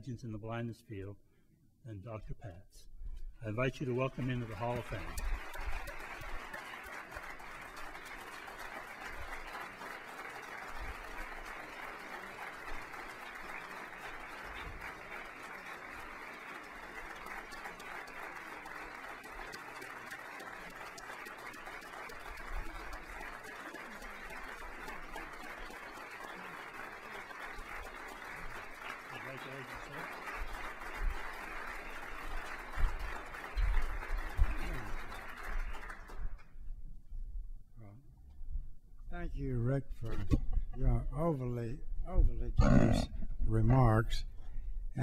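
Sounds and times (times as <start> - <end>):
audience applauding: 3.5 - 36.6.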